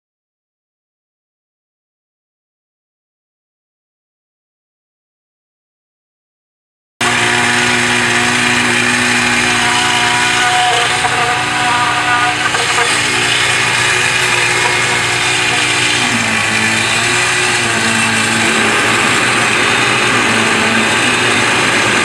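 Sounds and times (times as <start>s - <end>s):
concrete pouring down chute: 7.0s - 22.0s
truck engine running: 7.0s - 22.0s.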